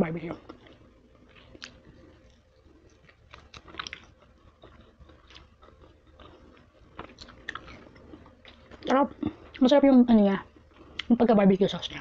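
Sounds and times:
small clicks while chewing: 0.4s - 8.9s
person chewing: 0.4s - 9.7s, 10.6s - 11.1s.

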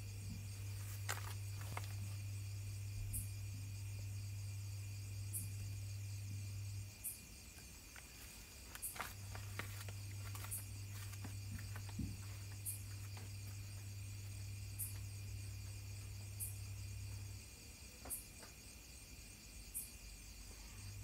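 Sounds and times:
low steady hum: 0.0s - 17.9s
crickets trilling: 0.0s - 21.0s.

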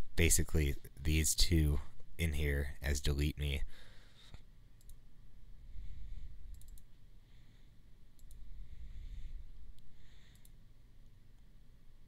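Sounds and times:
computer mouse clicking: 4.8s - 5.0s, 6.5s - 7.0s, 8.2s - 8.4s, 10.3s - 10.6s.

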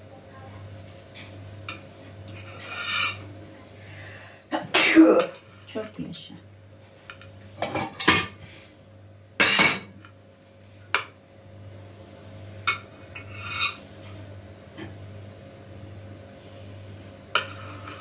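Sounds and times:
low steady hum: 0.0s - 18.0s
metal cake server scraping tray: 2.4s - 3.3s.

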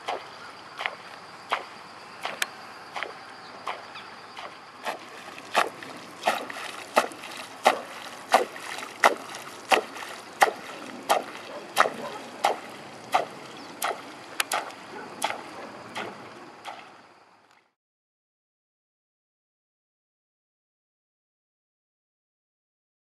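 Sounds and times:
lure splashing on water: 0.0s - 17.6s.

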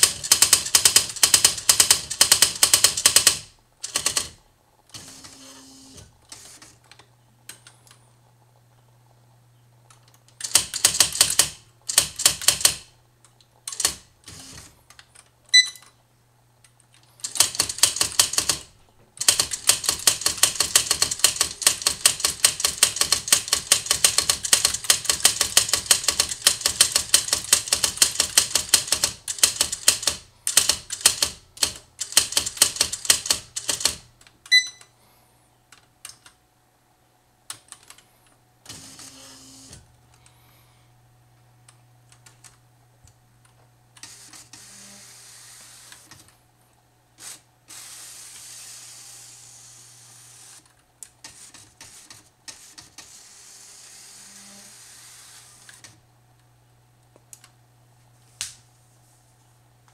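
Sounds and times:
typewriter character strikes: 0.0s - 4.3s.

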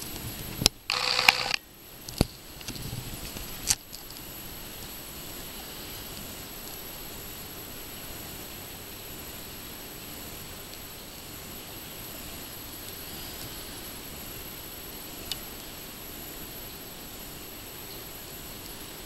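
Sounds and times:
sharp clicks: 0.6s - 2.3s.

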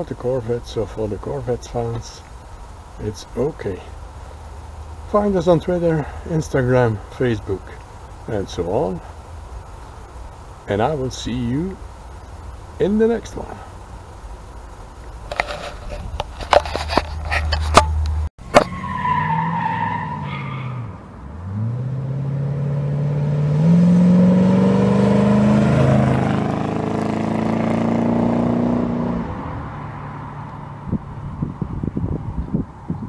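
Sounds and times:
car engine accelerating past: 20.8s - 31.0s.

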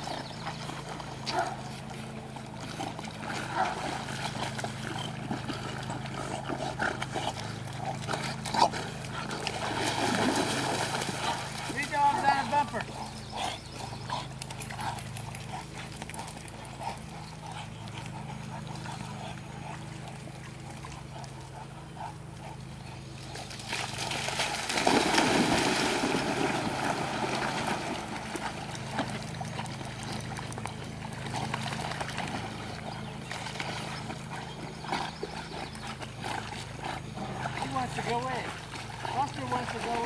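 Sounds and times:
steady low hum: 0.0s - 40.0s
water sloshing from swimming: 0.0s - 40.0s
dogs splashing into water: 6.9s - 13.3s, 23.4s - 40.0s.

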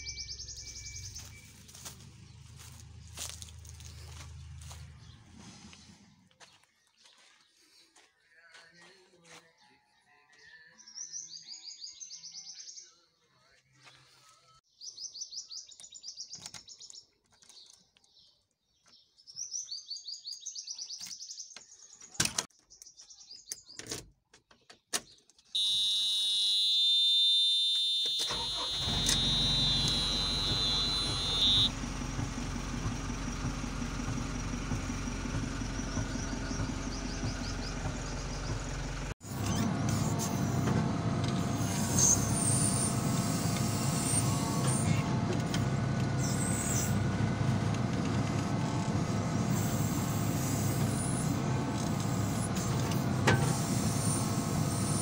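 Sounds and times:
diesel engine starting and idling: 0.0s - 6.4s, 25.6s - 55.0s
high-pitched warning buzzer: 25.6s - 31.7s.

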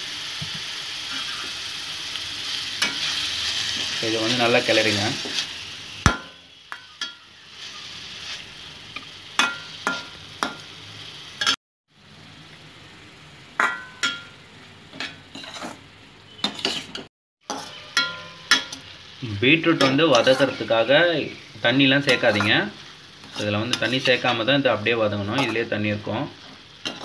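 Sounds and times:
frying sizzle: 0.0s - 27.0s
spatula scraping metal pan: 16.4s - 18.7s, 19.8s - 20.7s, 22.0s - 24.5s.

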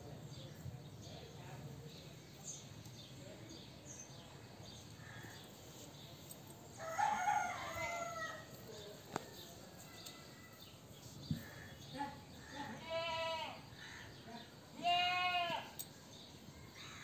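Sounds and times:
rooster crowing: 6.8s - 8.5s.

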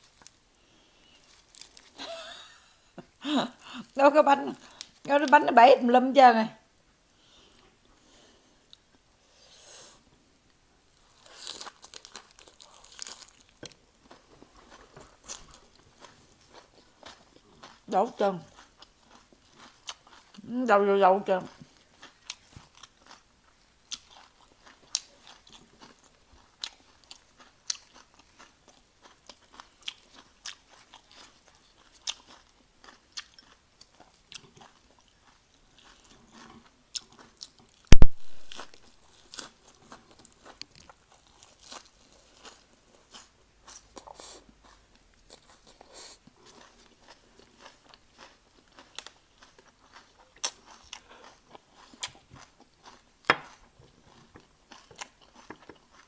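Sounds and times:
crispy food crunching and chewing: 0.0s - 2.5s, 11.0s - 56.0s.

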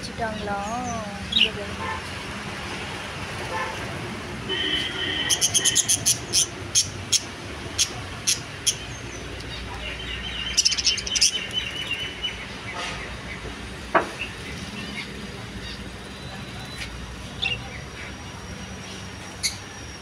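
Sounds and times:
budgerigars chirping: 5.2s - 12.9s.

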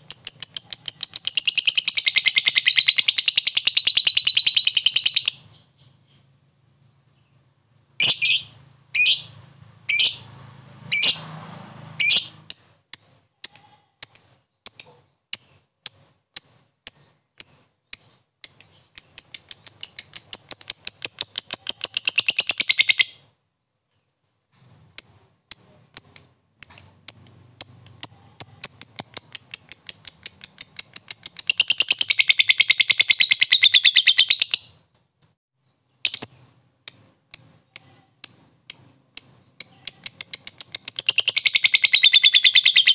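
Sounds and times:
lovebird chirping and trilling: 0.0s - 6.4s, 8.0s - 10.3s, 10.9s - 11.2s, 12.0s - 23.3s, 24.0s - 34.8s, 35.9s - 42.9s.

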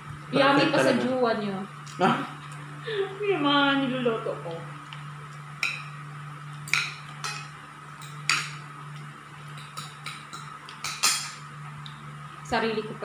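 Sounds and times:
cutlery clinking on plates: 9.6s - 11.4s.

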